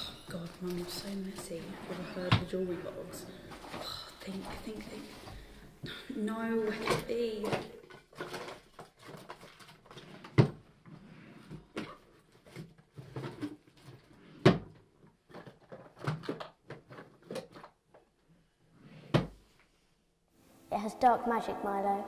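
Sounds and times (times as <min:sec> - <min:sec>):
items clattering in wooden drawer: 0:00.0 - 0:05.5, 0:06.5 - 0:10.7, 0:11.4 - 0:17.8.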